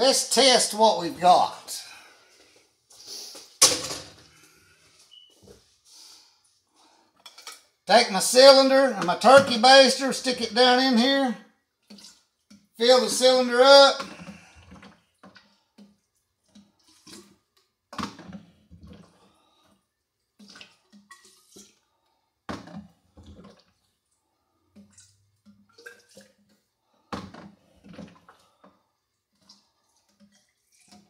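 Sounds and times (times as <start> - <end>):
liquid splashing and gurgling: 14.0 - 19.7, 20.4 - 28.7.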